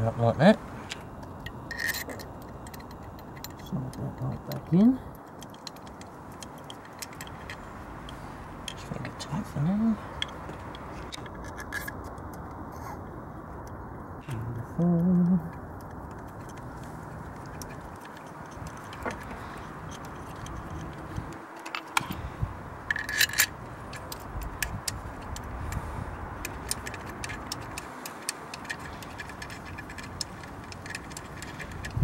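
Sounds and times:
small clicks and light rattles: 0.9 - 9.2, 15.0 - 22.2, 22.8 - 32.0.

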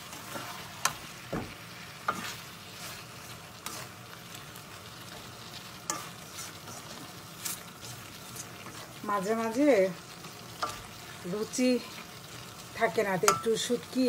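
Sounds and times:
metal spatula scraping a pan: 0.0 - 1.2, 1.9 - 9.0, 10.1 - 11.2
food sizzling in a wok: 0.0 - 14.0.

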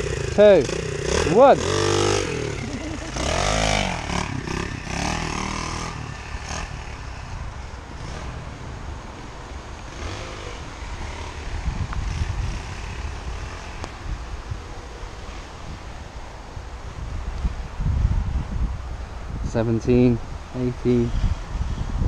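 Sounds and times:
pit bike engine revving: 0.0 - 16.0.

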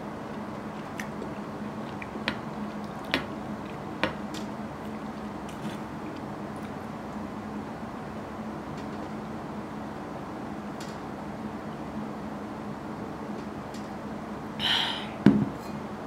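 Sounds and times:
steady low hum: 0.0 - 16.0
quiet chewing: 0.3 - 7.2.

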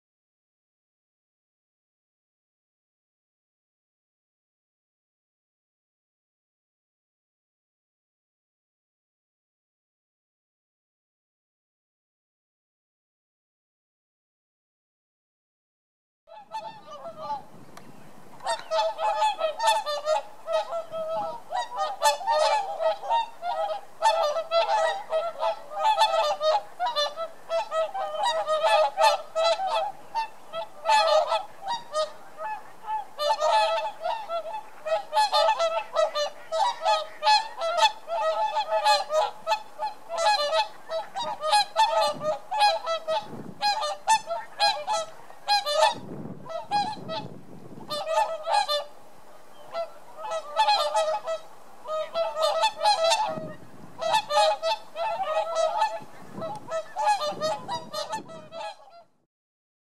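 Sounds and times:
swans honking: 16.3 - 59.1.

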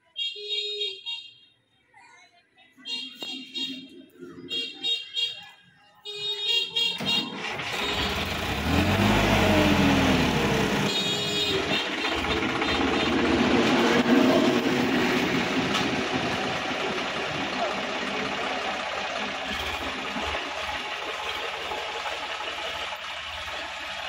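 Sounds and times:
tractor diesel engine revving: 7.0 - 24.0.

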